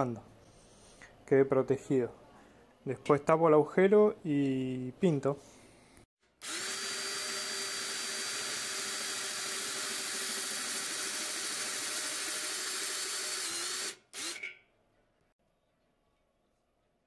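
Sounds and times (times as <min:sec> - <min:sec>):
electric drill boring into steel: 0:06.4 - 0:14.6.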